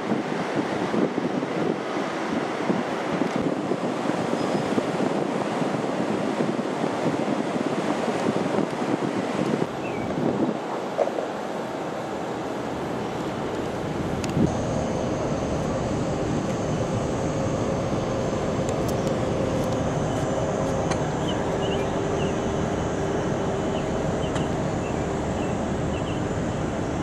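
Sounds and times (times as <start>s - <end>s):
vehicle rumbling in motion: 12.4s - 27.0s
faint hum: 12.6s - 27.0s.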